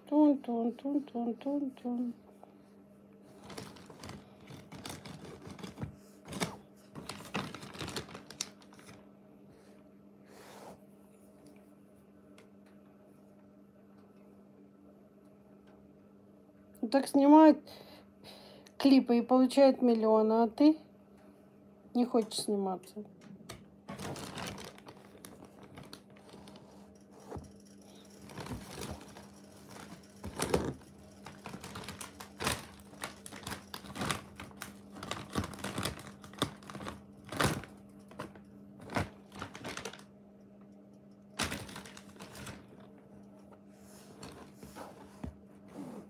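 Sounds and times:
plastic bag crinkling: 3.4 - 9.0, 23.9 - 26.6, 28.2 - 40.1, 41.4 - 42.9.

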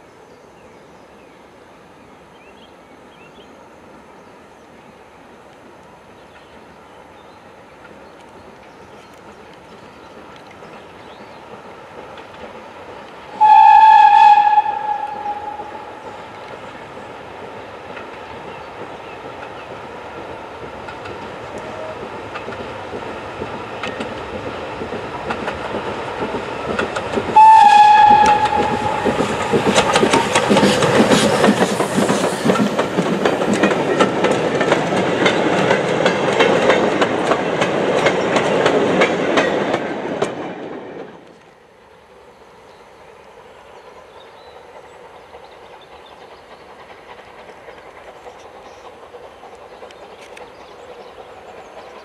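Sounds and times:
rapid steam exhaust beats: 9.3 - 38.4, 43.8 - 52.0
steam locomotive whistle: 13.4 - 16.2, 27.4 - 31.3
wheels clattering over rail joints: 14.4 - 41.3.

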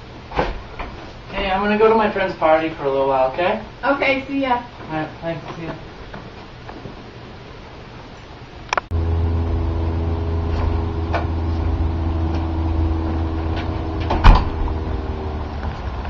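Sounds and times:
steady low hum: 6.9 - 16.0
door shutting with thud: 13.5 - 14.8.

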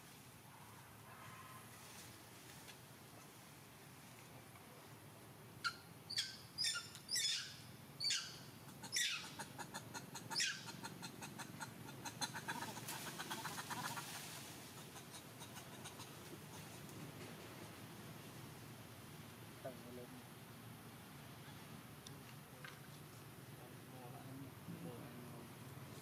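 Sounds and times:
short high animal calls: 5.6 - 9.4, 10.3 - 10.8.

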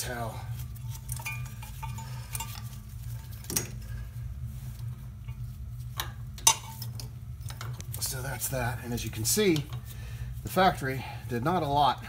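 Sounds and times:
steady low hum: 0.0 - 12.0
metal tools clicking and clinking: 0.8 - 3.8.

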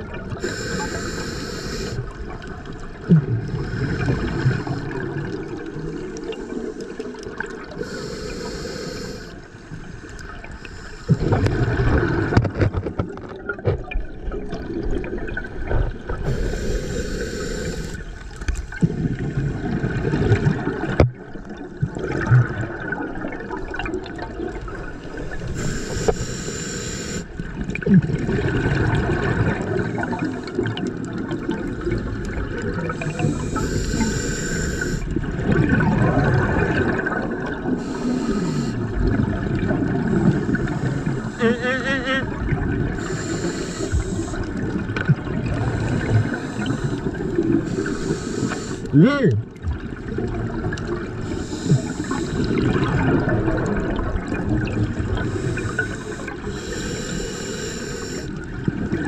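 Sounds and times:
exhaled bubbles gurgling: 0.0 - 59.0
regulator hiss on inhale: 0.4 - 2.1, 7.8 - 11.4, 16.2 - 18.6, 25.4 - 27.3, 32.9 - 35.2, 37.8 - 39.0, 40.5 - 41.8, 43.0 - 44.6, 45.6 - 48.9, 51.2 - 52.6, 55.2 - 58.4.

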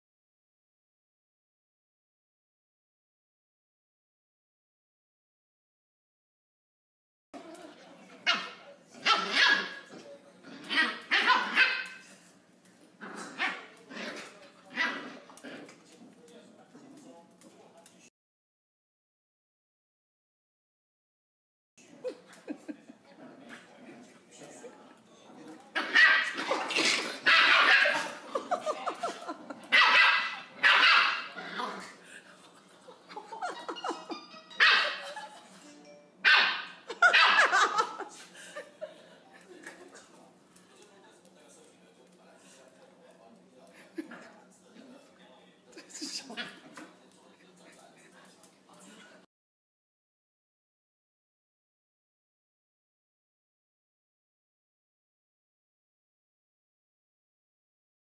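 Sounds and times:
dogs play-fighting: 7.4 - 17.6, 22.0 - 35.6, 45.8 - 49.2
puppy barking: 8.2 - 9.9, 10.7 - 12.0, 25.8 - 28.1, 29.7 - 31.7, 34.6 - 35.2, 36.2 - 37.9
high yapping dog barks: 29.7 - 31.3, 34.6 - 35.0, 36.2 - 37.6.

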